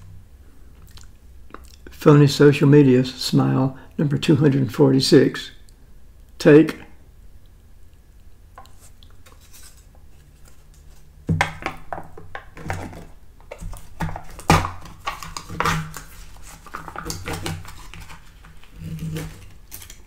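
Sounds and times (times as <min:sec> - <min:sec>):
plastic lid clicks and crinkles: 0:10.7 - 0:20.0.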